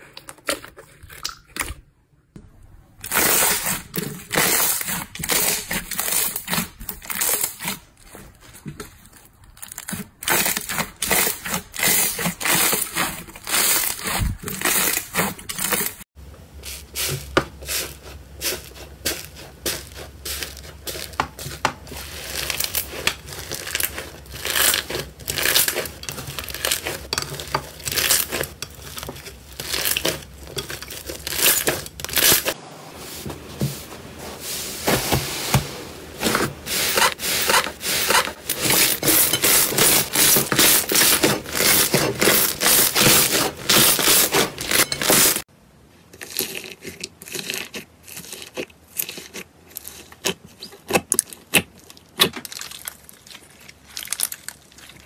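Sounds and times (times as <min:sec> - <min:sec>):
slime crackling and popping: 0:19.2 - 0:32.6, 0:50.6 - 0:55.0.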